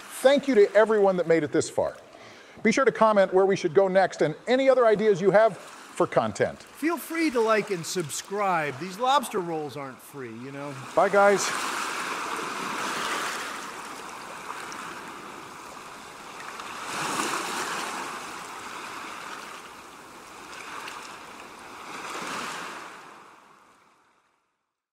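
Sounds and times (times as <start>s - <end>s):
sea waves washing onto shore: 4.5s - 23.8s.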